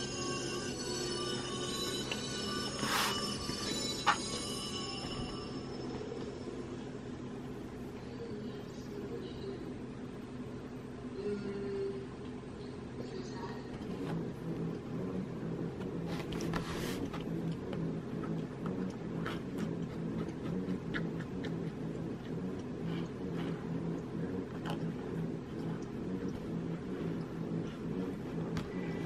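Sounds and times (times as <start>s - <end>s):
low drone: 13.8s - 29.0s
paintbrush scratching on canvas: 13.9s - 17.3s.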